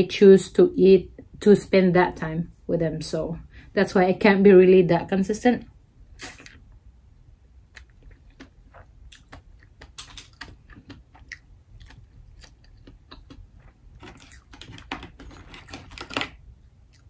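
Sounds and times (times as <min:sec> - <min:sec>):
mouth sounds of eating: 0:07.7 - 0:14.6.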